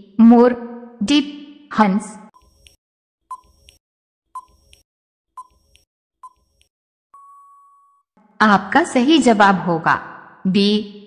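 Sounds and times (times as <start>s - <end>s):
long steady beep: 7.2s - 8.0s.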